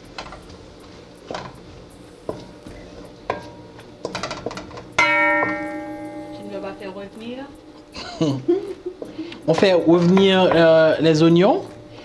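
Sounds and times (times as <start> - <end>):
guitar chord ringing: 5.0 - 8.7.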